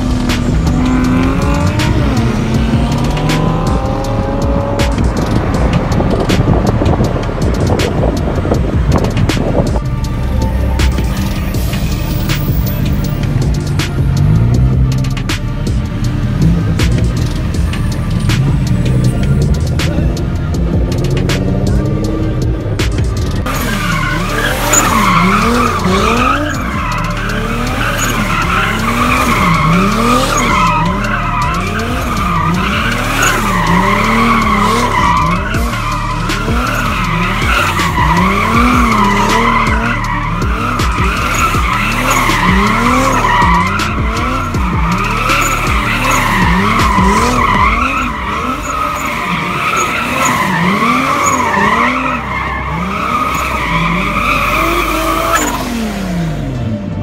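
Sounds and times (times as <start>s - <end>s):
car engine revving: 0.0s - 57.0s
tyres squealing: 23.4s - 55.8s.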